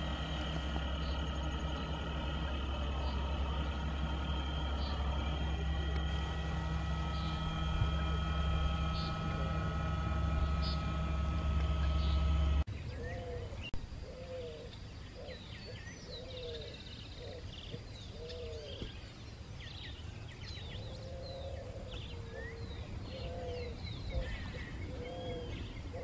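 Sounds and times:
birds chirping and whistling: 0:00.0 - 0:13.6
small boat motor humming: 0:00.0 - 0:13.8, 0:17.5 - 0:26.0.

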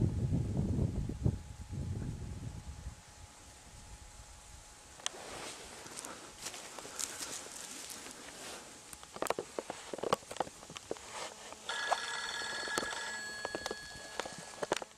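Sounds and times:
footsteps crunching on dry ground: 0:05.0 - 0:12.1, 0:12.8 - 0:14.9.

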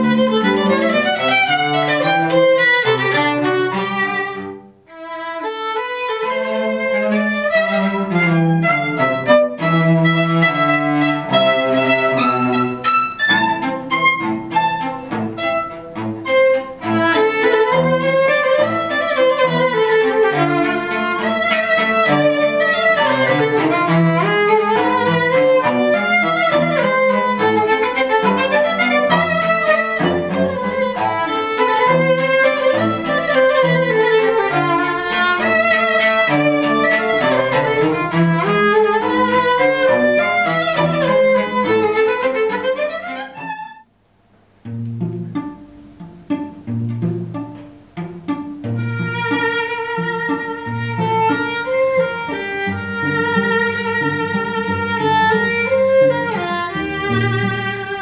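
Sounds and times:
cello playing: 0:00.0 - 0:43.9, 0:44.6 - 0:58.0
violin melody: 0:00.0 - 0:43.9, 0:44.6 - 0:58.0.

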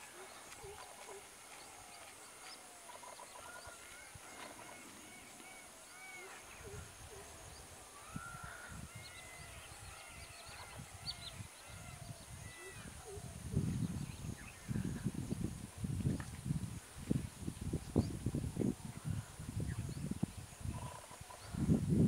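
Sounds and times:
birds chirping and calling: 0:00.0 - 0:15.1.

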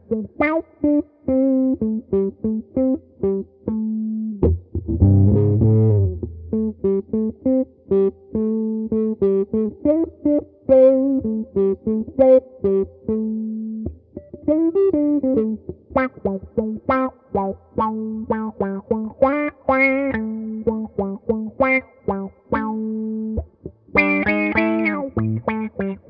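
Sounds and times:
electric guitar with auto-wah: 0:00.0 - 0:26.0.

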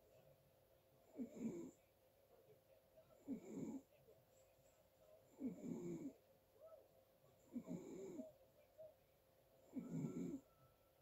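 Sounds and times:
person snoring: 0:09.7 - 0:10.4.

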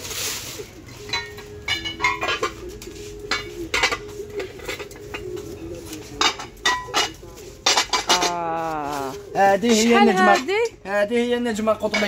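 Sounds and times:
dishes and lids clinking: 0:01.0 - 0:08.5, 0:11.7 - 0:12.0.

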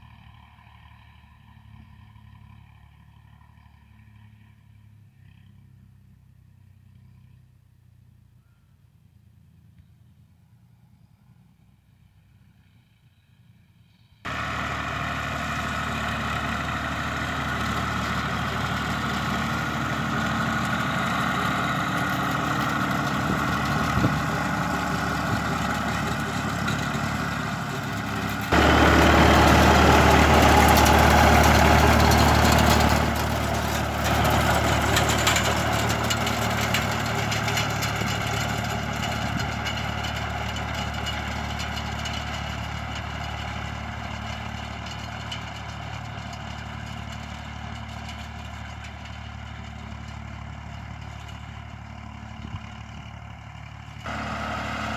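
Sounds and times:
tractor engine running: 0:14.3 - 0:54.9.

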